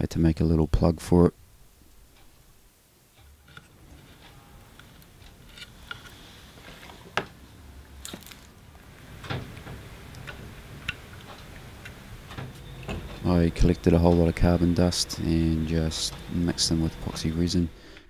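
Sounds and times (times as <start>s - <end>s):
low hum: 8.6s - 18.0s.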